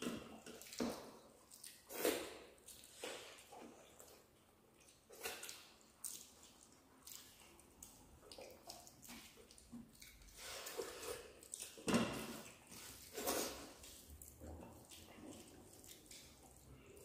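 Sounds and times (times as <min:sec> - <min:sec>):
mouths chewing and smacking: 0:00.0 - 0:17.0
fingers mixing rice: 0:05.1 - 0:17.0.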